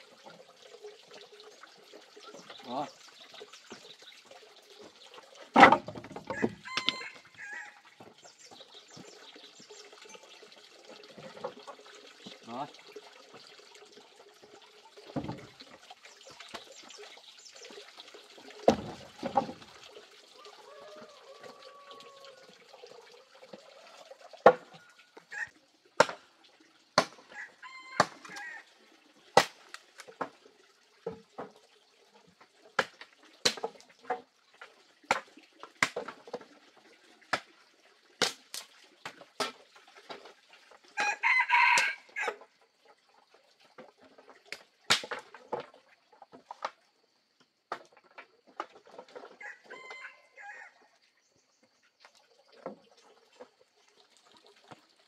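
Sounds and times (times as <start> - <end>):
firewood sticks knocking: 5.6 - 7.0
rooster crowing: 6.3 - 7.8, 20.4 - 22.5, 27.3 - 28.6, 41.0 - 42.4, 49.4 - 50.8.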